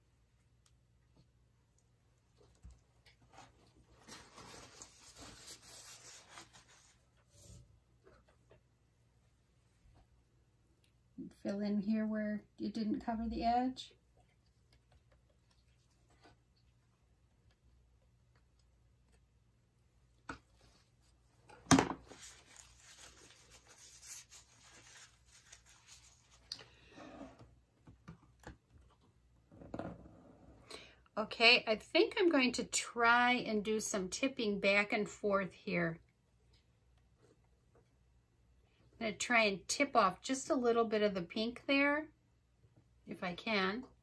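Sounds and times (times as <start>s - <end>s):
hands rustling and rubbing: 3.2s - 7.6s, 22.0s - 26.5s.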